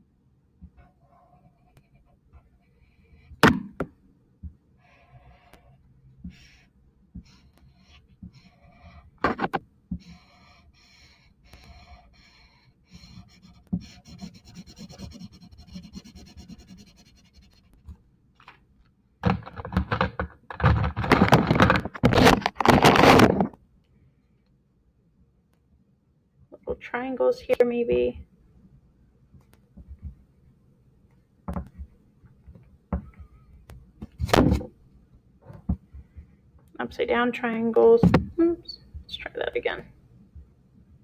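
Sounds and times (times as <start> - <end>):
marker squeaking on paper: 4.8 - 17.8
scratching and rubbing on paper: 4.8 - 17.9.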